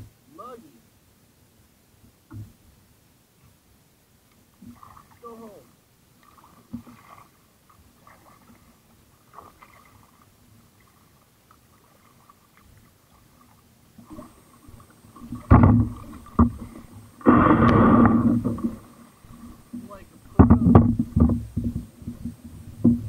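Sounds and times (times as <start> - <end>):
paddle splashing water: 4.3 - 23.0
loud burst of noise: 17.2 - 18.6.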